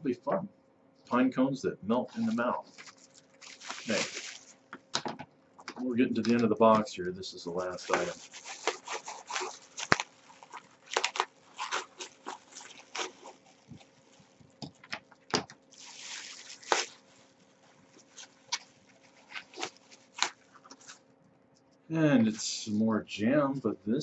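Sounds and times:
plastic bag crinkling: 2.1 - 5.0, 7.5 - 21.0.

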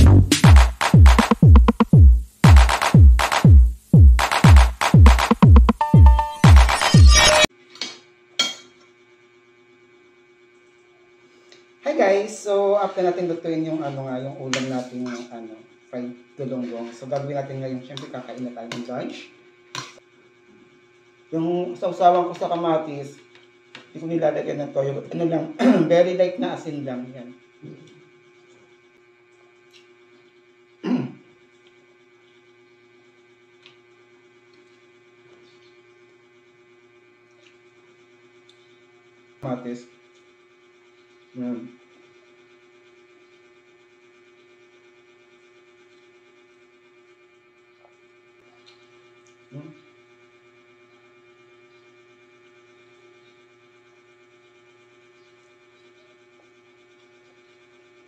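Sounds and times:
low electrical hum: 7.5 - 58.0
man clearing throat: 25.6 - 26.0, 30.8 - 31.3.

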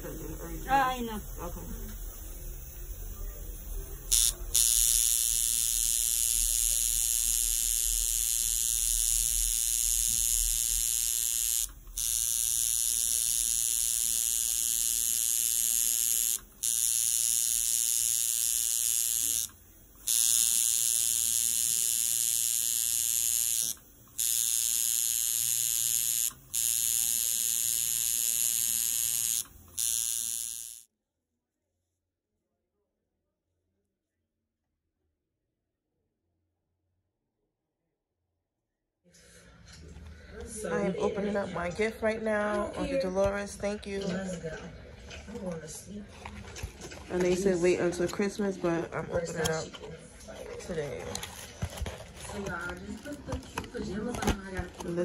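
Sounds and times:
handheld electric tool whining: 4.1 - 30.9.

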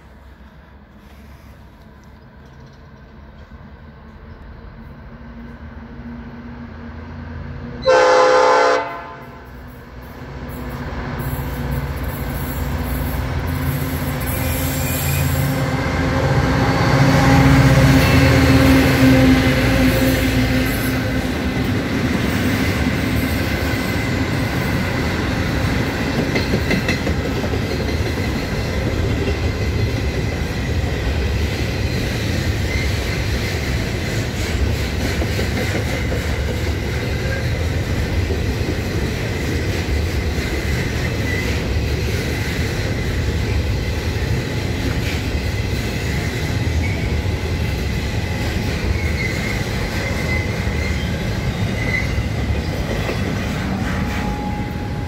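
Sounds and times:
diesel locomotive engine: 0.0 - 55.0
train horn honk: 7.8 - 9.6.

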